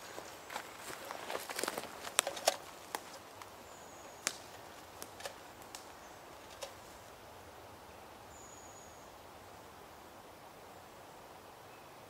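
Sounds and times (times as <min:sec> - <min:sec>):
faint clicks and snaps: 0:04.2 - 0:06.8.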